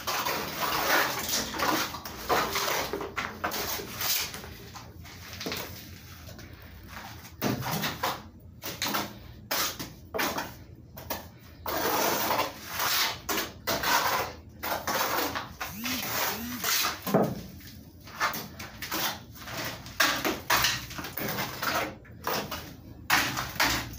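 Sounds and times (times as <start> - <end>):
trowel scraping plaster on wall: 0.0 - 4.5, 7.4 - 10.6, 11.5 - 17.1.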